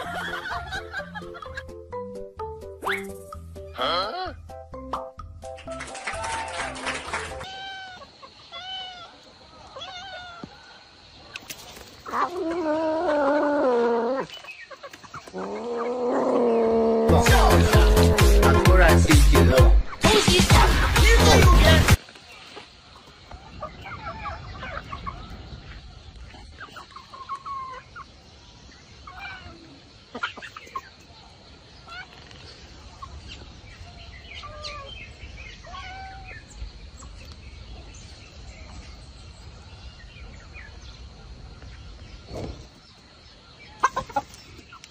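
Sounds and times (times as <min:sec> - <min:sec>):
chickens clucking: 0:10.4 - 0:33.8, 0:42.3 - 0:44.9
loud burst of music: 0:17.1 - 0:22.0.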